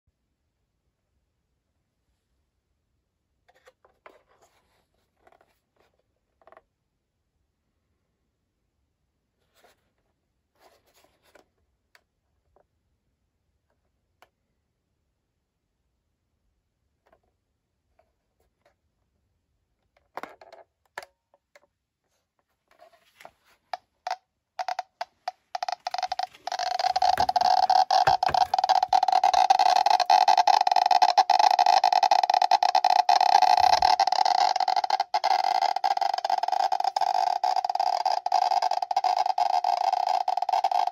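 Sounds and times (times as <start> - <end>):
geiger counter clicking: 24.1 - 40.9
geiger counter continuous buzz: 24.6 - 40.9.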